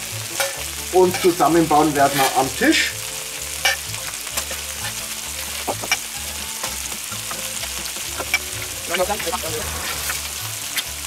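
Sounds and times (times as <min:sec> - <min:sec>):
food sizzling on grill plate: 0:00.0 - 0:11.0
metal spatula clinks and scrapes: 0:00.3 - 0:01.4, 0:03.5 - 0:06.8.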